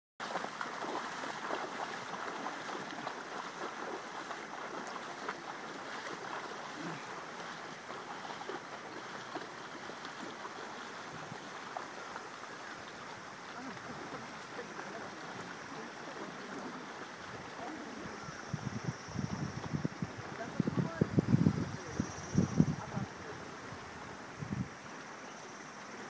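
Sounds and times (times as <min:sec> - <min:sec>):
river water rushing: 0:00.2 - 0:18.8
feet and paws splashing in water: 0:00.2 - 0:24.3.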